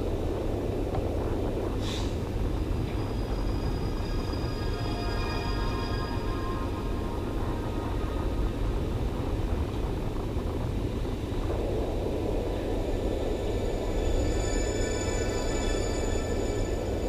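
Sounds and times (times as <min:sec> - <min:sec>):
faint background music: 0:00.0 - 0:17.0
low rumbling room noise: 0:00.0 - 0:17.0.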